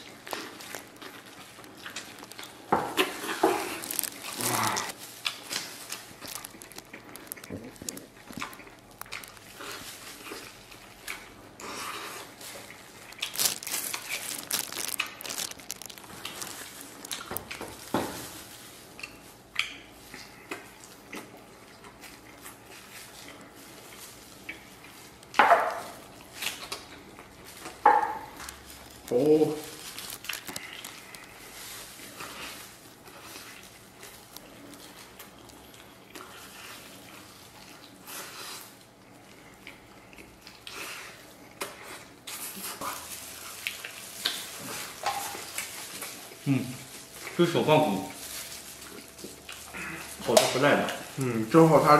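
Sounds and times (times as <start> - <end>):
wet mouth noises: 0.0 - 17.8
biting and chewing meat: 0.0 - 51.8.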